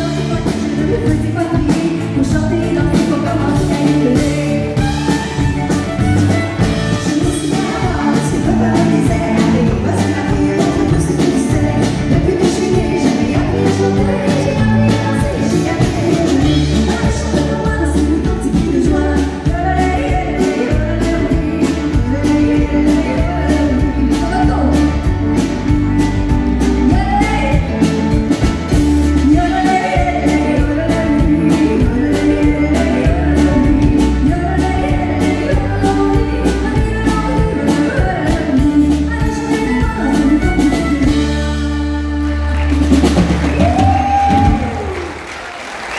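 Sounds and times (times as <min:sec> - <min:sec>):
woman singing: 0:00.0 - 0:45.1
bass guitar: 0:00.0 - 0:45.9
electric guitar: 0:00.0 - 0:45.9
drum beat: 0:42.7 - 0:45.0.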